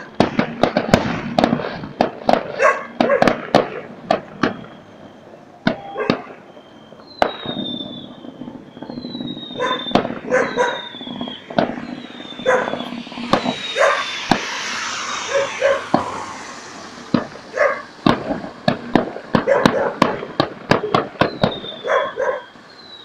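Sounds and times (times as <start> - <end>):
crackling hiss: 0.0 - 23.0
fireworks bangs: 0.0 - 23.0
fireworks whistles falling in pitch: 0.0 - 23.0
dog barking: 2.5 - 3.4, 6.0 - 6.3, 9.6 - 10.8, 12.4 - 12.8, 17.6 - 17.9, 19.4 - 20.2, 21.8 - 22.5.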